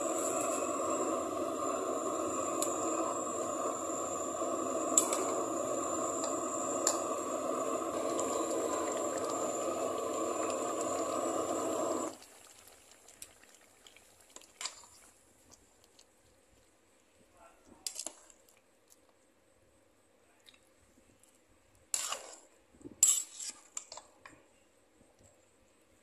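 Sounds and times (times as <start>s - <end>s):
pot of curry hissing on stove: 0.0s - 15.3s, 21.9s - 24.2s.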